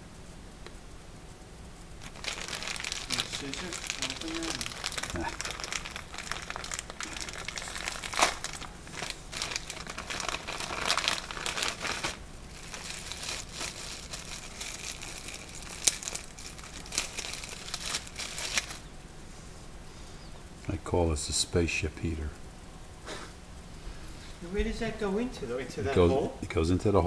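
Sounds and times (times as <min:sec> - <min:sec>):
plastic bag crinkling: 0:02.0 - 0:18.9.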